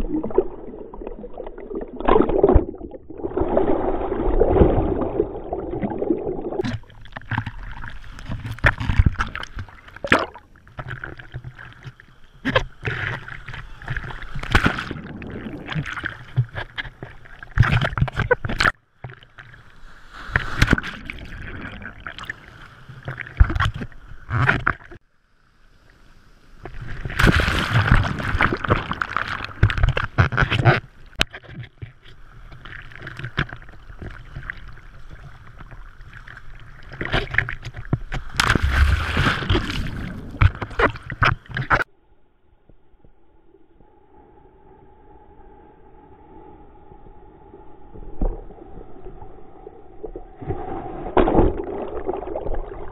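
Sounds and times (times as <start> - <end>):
waves churning and splashing: 0.0 - 18.6, 26.7 - 41.8.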